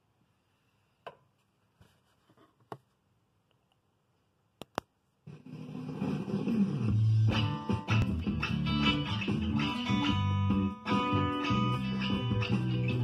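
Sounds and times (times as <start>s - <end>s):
electric guitar playing: 6.9s - 13.0s.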